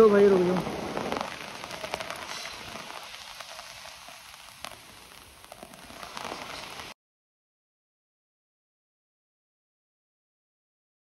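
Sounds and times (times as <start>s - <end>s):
rain pattering: 0.0s - 7.0s.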